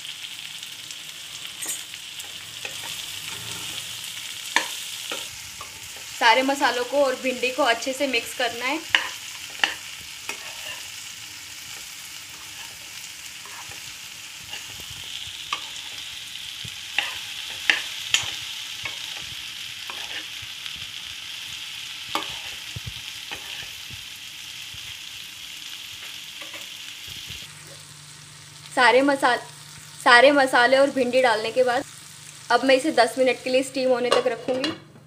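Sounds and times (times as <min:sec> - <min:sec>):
okra sizzling in oil: 0:00.0 - 0:34.7
steel spoon scraping a pan: 0:01.4 - 0:16.2, 0:16.8 - 0:20.5, 0:22.1 - 0:23.9, 0:26.0 - 0:26.8, 0:34.0 - 0:34.8.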